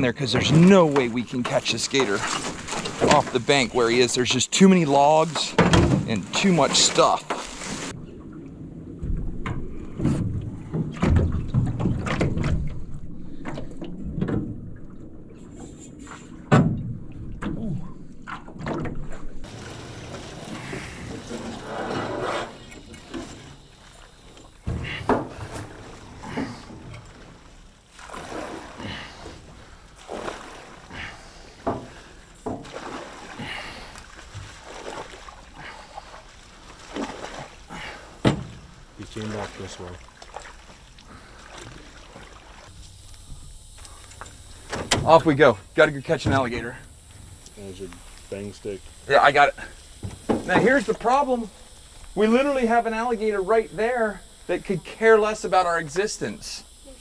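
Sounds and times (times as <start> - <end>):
paddle swishing through water plants: 0.0 - 14.2, 15.3 - 16.5, 17.2 - 44.7
knocks and clunks from boat hull: 5.4 - 6.2, 9.0 - 14.7, 16.4 - 19.3, 24.6 - 27.3, 31.6 - 32.8, 38.2 - 38.8, 50.0 - 50.7
paddle knocking against hull: 9.0 - 14.6, 31.6 - 33.4, 38.2 - 38.8, 50.0 - 50.7.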